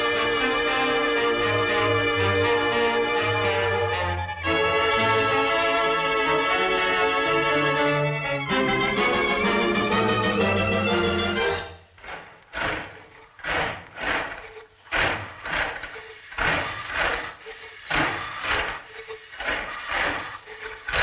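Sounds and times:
cartoon machine mechanical strokes: 11.7 - 21.0.

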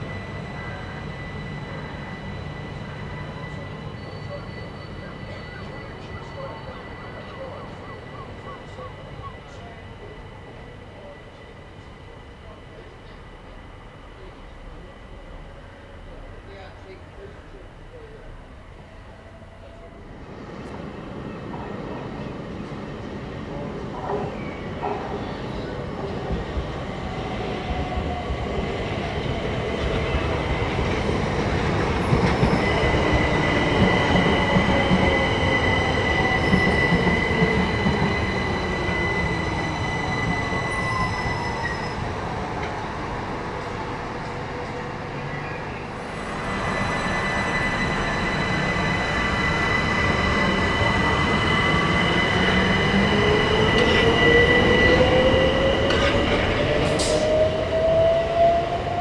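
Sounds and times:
electric train whine: 0.0 - 59.0
wheel and brake squeal: 36.1 - 42.1.

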